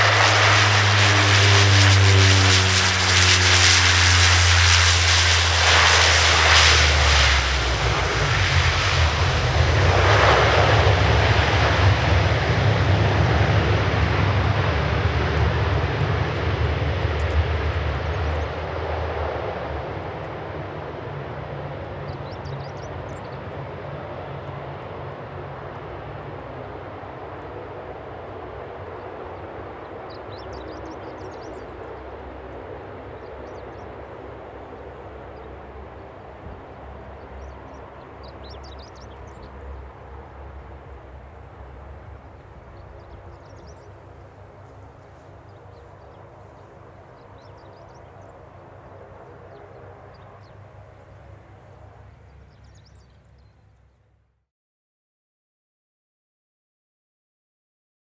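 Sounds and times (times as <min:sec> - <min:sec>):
broad rushing roar: 0:00.0 - 0:32.6
turboprop engines droning: 0:00.0 - 0:54.1.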